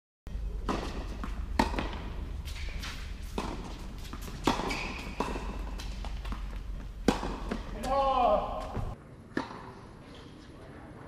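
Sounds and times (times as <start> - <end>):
steady low hum: 0.3 - 7.8
tennis ball knocks: 7.0 - 9.7.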